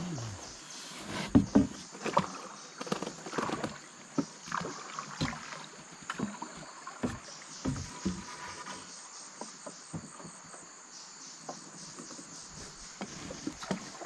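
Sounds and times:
water splashing: 1.1 - 8.9
pole knocking against boat hull: 1.3 - 1.8.

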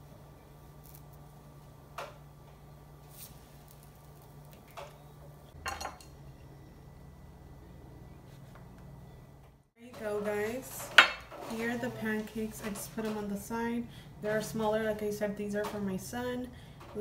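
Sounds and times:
steady low hum: 0.0 - 17.0
spatula scraping a griddle: 10.6 - 13.4.

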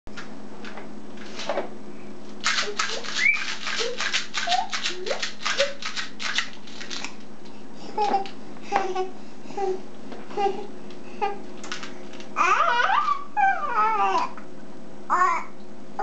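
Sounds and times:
baby vocal sounds: 12.4 - 14.4, 15.1 - 15.5.

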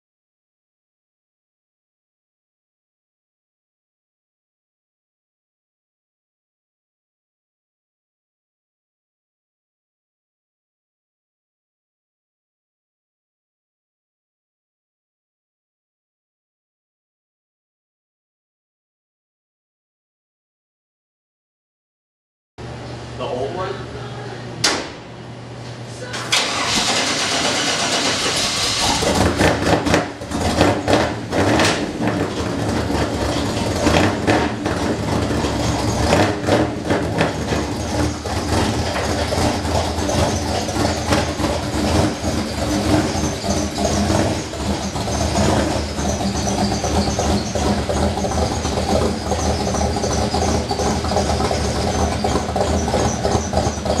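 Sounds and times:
engine revving and running: 26.3 - 54.0
starter cranking engine: 26.3 - 54.0.

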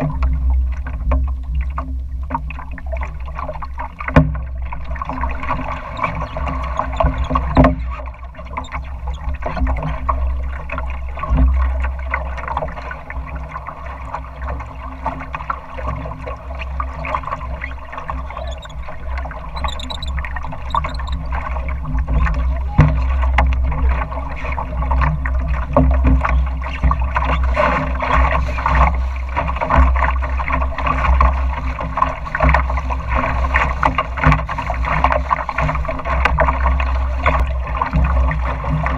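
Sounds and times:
water splashing against boat hull: 0.0 - 38.9.

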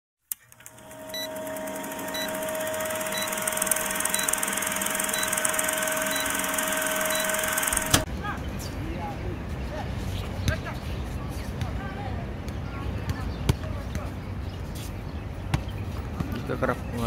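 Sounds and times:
projector-like hum: 0.3 - 8.1
short beeps: 1.1 - 1.4, 2.1 - 2.4, 3.1 - 3.4, 4.1 - 4.4, 5.0 - 7.8.

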